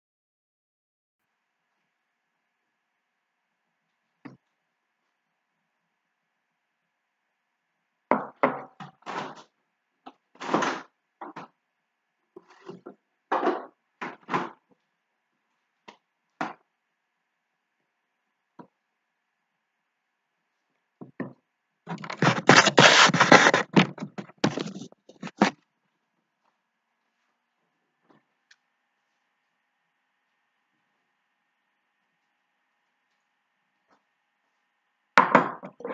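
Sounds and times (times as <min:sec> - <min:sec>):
dense clatter and rubbing: 0:09.0 - 0:09.5, 0:21.9 - 0:25.6.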